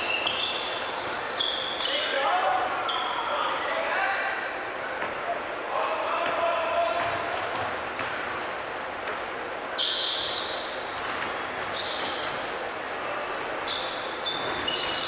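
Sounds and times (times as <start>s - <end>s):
sneakers squeaking: 0.0s - 3.6s, 6.1s - 15.0s
echoing hum of hall: 0.0s - 15.0s
basketball bouncing: 7.0s - 8.2s.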